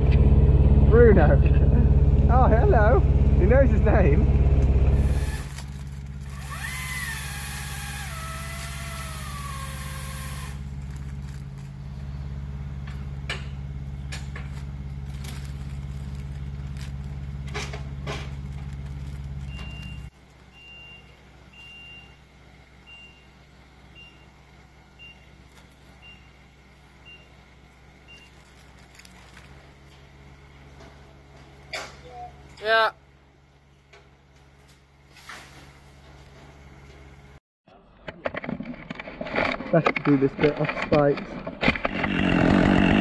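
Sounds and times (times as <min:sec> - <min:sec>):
machine engine running: 0:00.0 - 0:20.2, 0:38.2 - 0:43.0.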